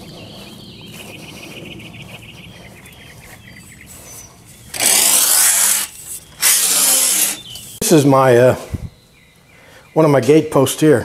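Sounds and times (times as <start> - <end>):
birds chirping: 0.0 - 11.0
power tool running: 4.7 - 7.5.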